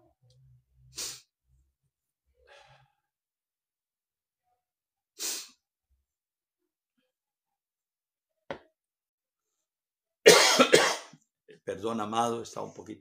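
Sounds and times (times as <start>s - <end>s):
man sniffing hard: 1.0s - 1.3s, 5.2s - 5.6s.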